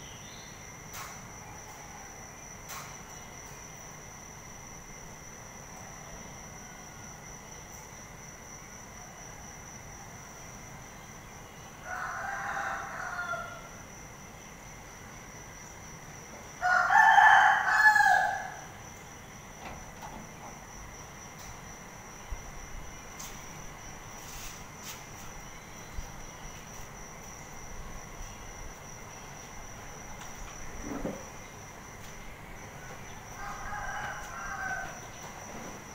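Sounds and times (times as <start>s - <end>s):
high insect drone: 0.0s - 35.9s
rooster crowing: 11.8s - 13.8s, 16.6s - 18.8s, 32.8s - 35.4s.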